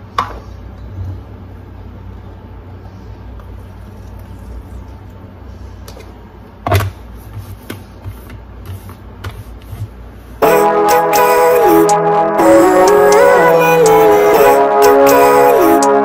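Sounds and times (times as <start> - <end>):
low steady hum: 0.0 - 16.0
music: 10.4 - 16.0.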